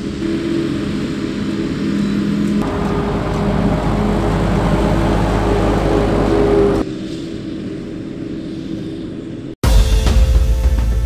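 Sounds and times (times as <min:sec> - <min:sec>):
engine hum: 0:00.0 - 0:08.4.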